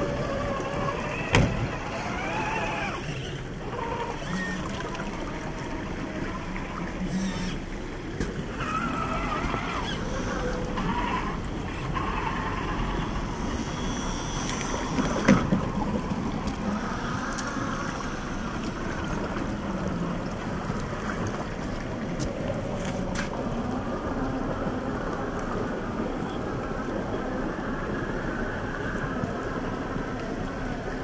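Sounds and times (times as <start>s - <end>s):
electric motor whining: 0.0s - 22.2s
water rushing and splashing: 0.0s - 31.0s.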